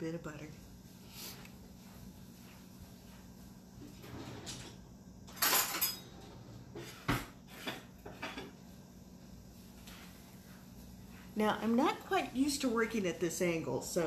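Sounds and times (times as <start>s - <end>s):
faint steady hum: 0.0s - 14.0s
dishes and cutlery clattering: 5.3s - 8.6s.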